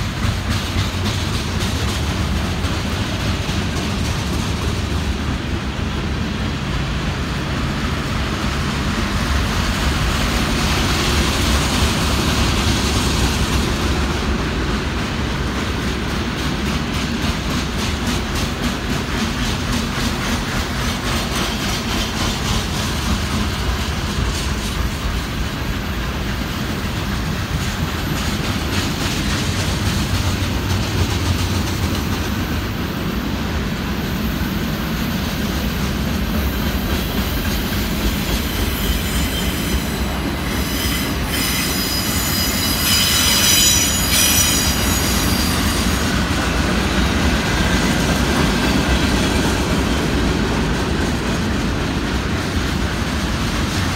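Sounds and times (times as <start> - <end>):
freight cars rumbling on rails: 0.0 - 53.9
high-pitched wheel squeal: 38.4 - 46.0.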